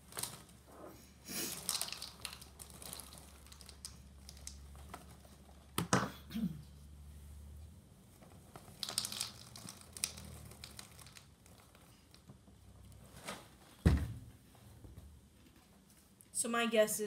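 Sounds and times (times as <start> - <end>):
cereal packaging crinkling: 0.0 - 0.6, 1.4 - 5.6, 8.6 - 12.2.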